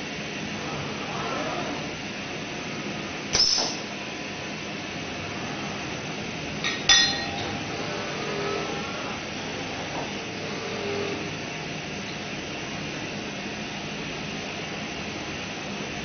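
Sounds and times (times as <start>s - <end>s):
glass bottle clink: 6.6s - 7.5s
robot arm drives whining: 7.3s - 11.4s.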